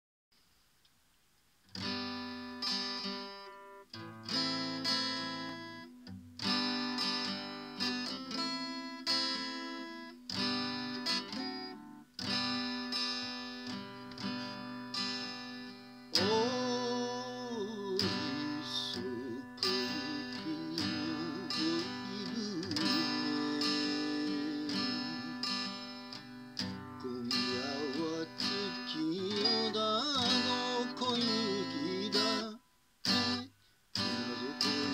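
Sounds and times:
acoustic guitar strumming chords: 0:01.7 - 0:34.9
man singing: 0:16.1 - 0:25.8, 0:26.9 - 0:34.9.

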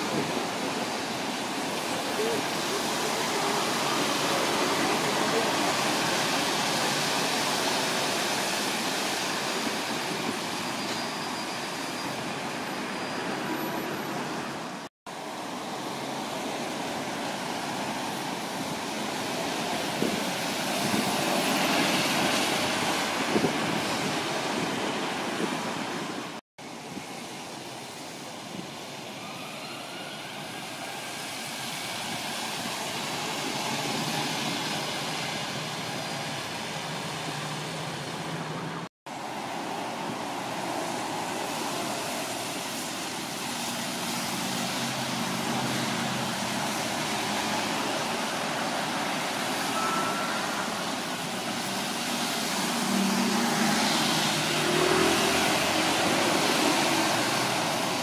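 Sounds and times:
bus passing close by: 0:00.0 - 0:26.4, 0:29.8 - 0:58.0
street traffic: 0:00.0 - 0:58.0.

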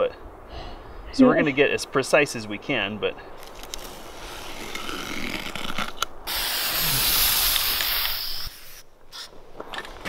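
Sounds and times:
spray hiss: 0:06.3 - 0:08.9.

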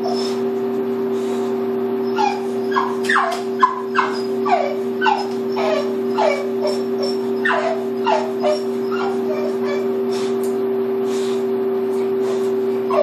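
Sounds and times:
dog whimpering: 0:00.0 - 0:00.5, 0:02.0 - 0:10.4, 0:12.0 - 0:13.0
steady low hum: 0:00.0 - 0:13.0.

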